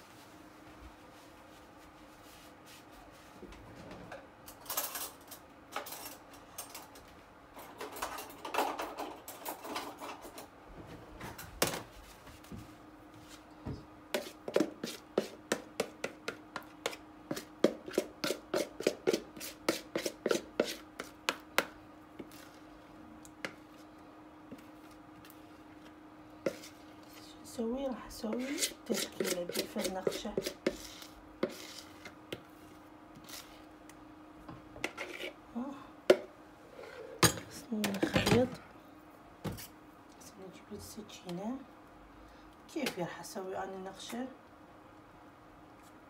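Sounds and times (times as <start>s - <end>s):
utensils scraping bakeware: 28.3s - 32.2s, 34.8s - 35.4s.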